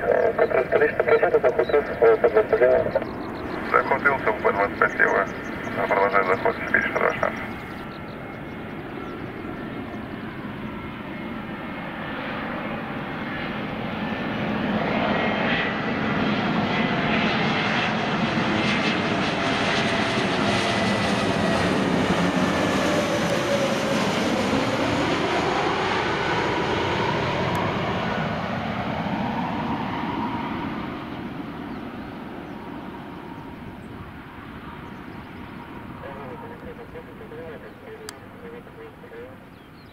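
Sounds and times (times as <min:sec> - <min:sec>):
falling engine whine: 0:00.0 - 0:14.8
jet airliner passing overhead: 0:00.0 - 0:39.9.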